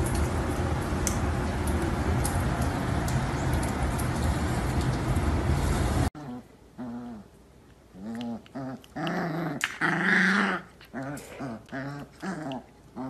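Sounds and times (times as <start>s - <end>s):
puppy play growls and whines: 6.2s - 13.0s.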